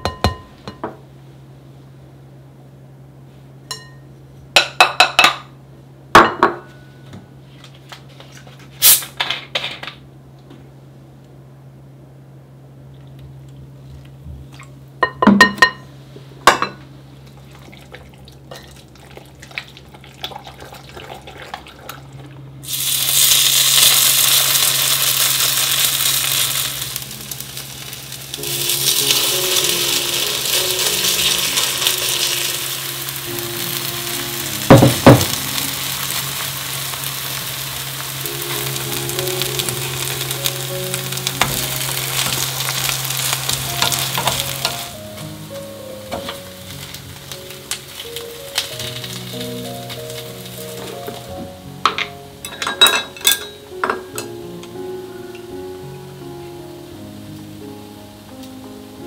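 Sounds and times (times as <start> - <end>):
batter sizzling in oil: 17.2 - 54.8.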